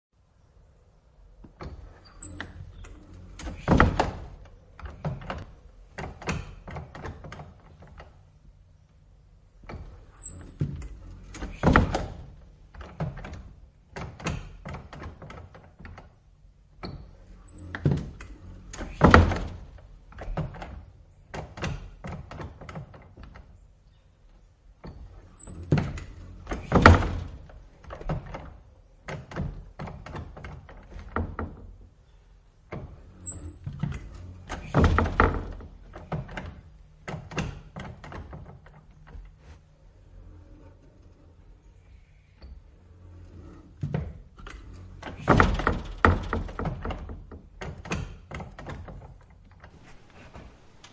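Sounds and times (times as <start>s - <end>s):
wooden screen door slamming: 1.5s - 8.3s, 9.6s - 16.2s, 16.8s - 23.6s, 24.8s - 31.9s, 32.6s - 39.3s, 43.8s - 50.9s
door hinge squeak: 1.6s - 5.5s, 9.6s - 12.2s, 24.8s - 27.4s, 33.0s - 36.6s
rattling knocks: 42.5s - 50.9s.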